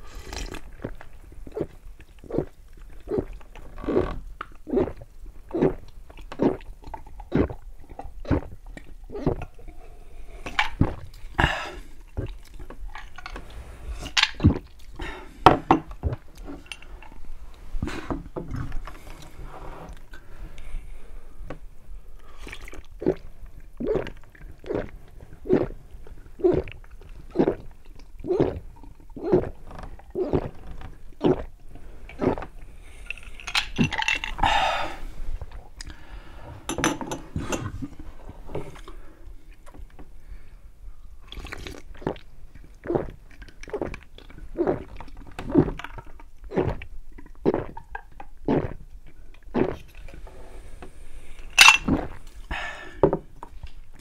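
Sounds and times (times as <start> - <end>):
gulping soda: 0.0 - 13.2, 13.8 - 17.2, 22.2 - 36.1, 41.2 - 50.2
ice clinking in glass: 51.6 - 52.0.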